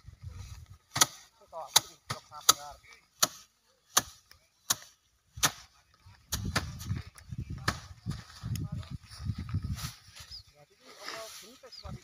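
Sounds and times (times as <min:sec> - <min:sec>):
rice stalks whacking wooden rack: 0:00.9 - 0:06.8.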